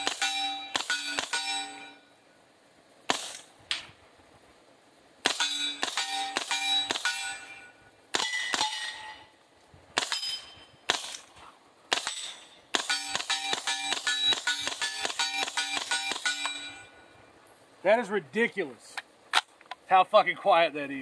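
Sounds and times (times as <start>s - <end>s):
steel target clanging: 0.0s - 2.1s, 5.2s - 9.4s, 10.0s - 11.3s, 11.9s - 17.1s
quiet suppressed gunshots: 3.0s - 3.8s, 5.2s - 7.5s, 10.0s - 16.6s.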